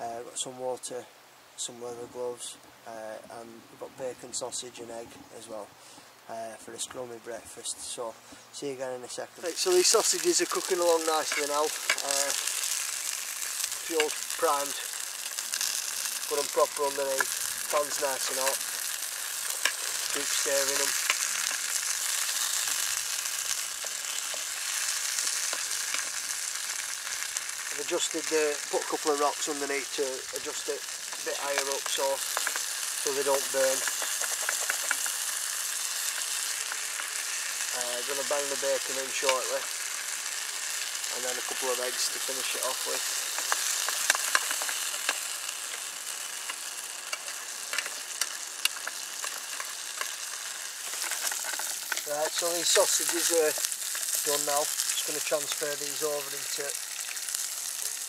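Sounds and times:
sausages sizzling in a pan: 7.9s - 58.0s
utensil clicking in pan: 31.1s - 37.2s, 43.2s - 50.2s.

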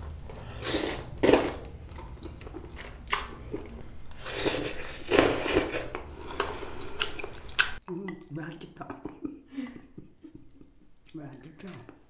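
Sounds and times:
slurping noodles: 0.3s - 7.8s
soft wet chewing: 1.2s - 12.0s.

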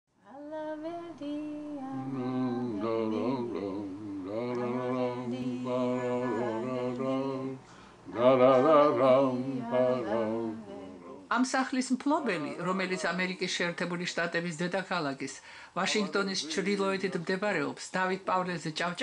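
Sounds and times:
voices singing a chant: 1.0s - 11.3s.

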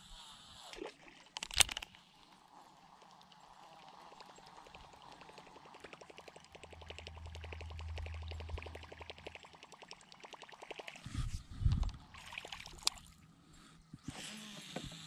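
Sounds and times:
fishing reel ticking: 0.7s - 11.0s
low hum: 3.2s - 13.5s.

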